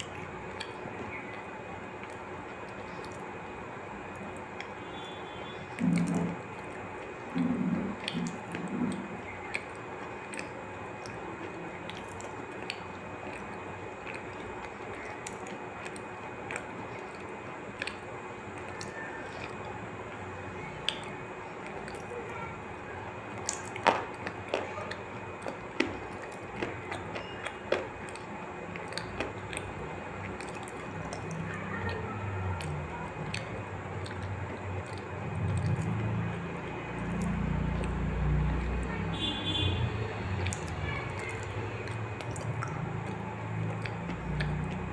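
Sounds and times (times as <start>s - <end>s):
person chewing crunchy snack: 4.1s - 19.8s, 23.3s - 31.5s, 32.6s - 38.7s
mouth clicks: 5.7s - 6.4s.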